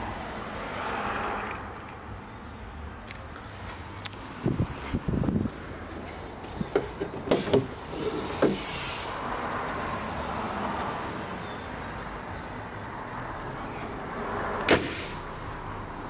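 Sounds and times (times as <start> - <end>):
car bonnet clicks and knocks: 6.6 - 8.6
car bonnet slamming shut: 7.1 - 7.7, 14.7 - 15.2.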